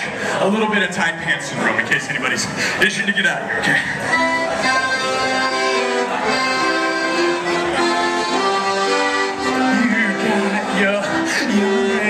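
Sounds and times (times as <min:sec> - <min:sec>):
piano accordion melody: 0:04.0 - 0:12.0.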